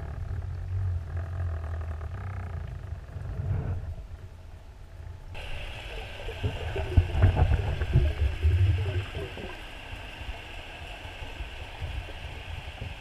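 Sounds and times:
muffled underwater rumble: 0.0s - 13.0s
underwater hiss: 5.4s - 13.0s.

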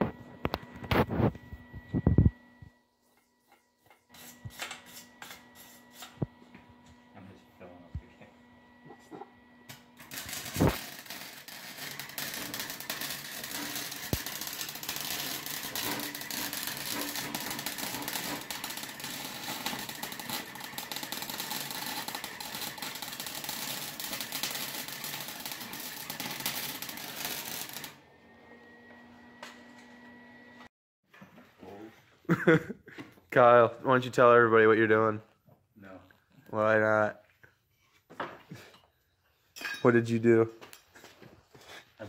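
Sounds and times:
welding arc crackling: 9.7s - 28.0s.

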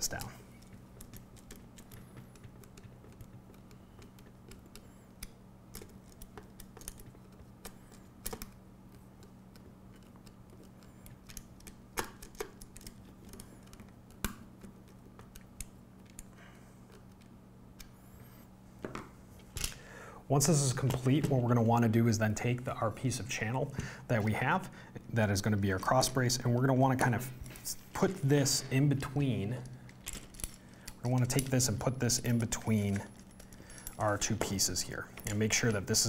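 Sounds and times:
screw and nut clicking: 0.0s - 8.6s
faint low hum: 0.0s - 36.0s.

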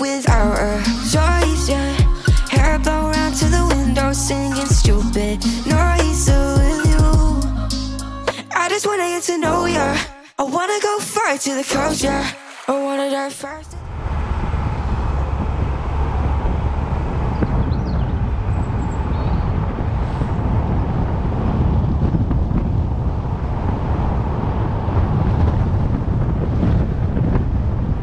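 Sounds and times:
road and engine rumble: 0.3s - 8.3s, 13.7s - 28.0s
wind buffeting microphone: 13.8s - 28.0s.

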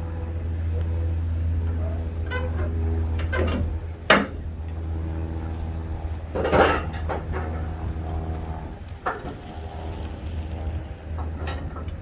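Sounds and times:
engine idling: 0.0s - 12.0s
metal clanks: 6.3s - 7.7s, 11.1s - 12.0s.

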